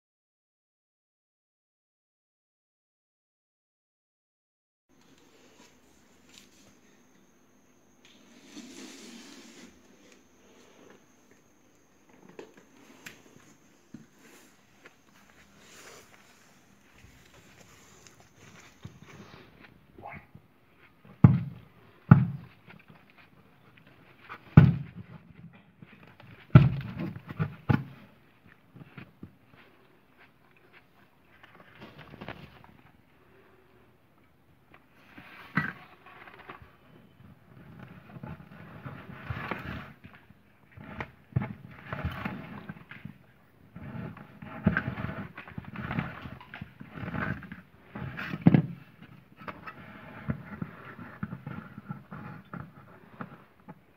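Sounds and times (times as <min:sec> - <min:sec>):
wire scraping against cardboard: 0:08.0 - 0:11.0, 0:35.0 - 0:53.7.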